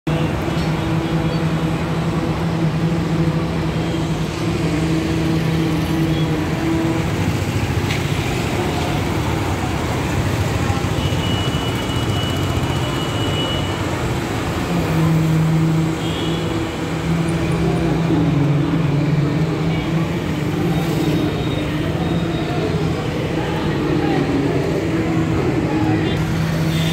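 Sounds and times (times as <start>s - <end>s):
steady engine hum: 0.1s - 13.0s
motorbikes passing: 0.1s - 26.9s.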